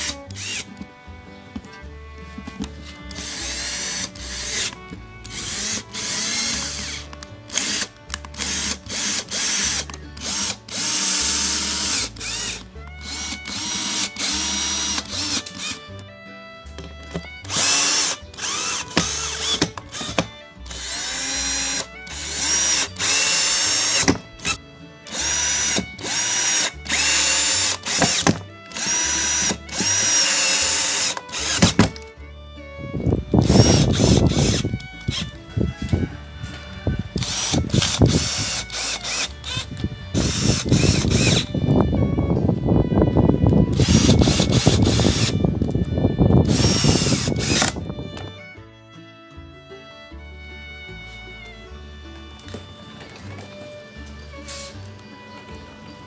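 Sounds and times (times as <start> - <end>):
cordless drill driving screws: 0.0 - 0.9, 2.4 - 16.1, 16.8 - 32.1, 33.3 - 36.0, 37.1 - 41.6, 43.7 - 45.8, 46.4 - 48.4.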